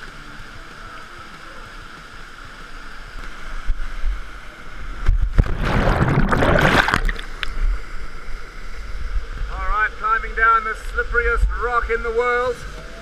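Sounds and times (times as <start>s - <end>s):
churning water underwater: 3.4s - 9.5s
person splashing into water: 5.4s - 7.5s.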